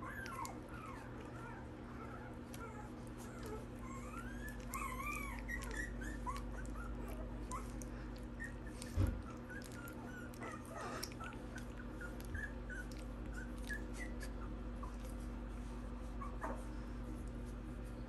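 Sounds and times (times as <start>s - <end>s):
puppies squeaking and whimpering: 0.0s - 15.4s.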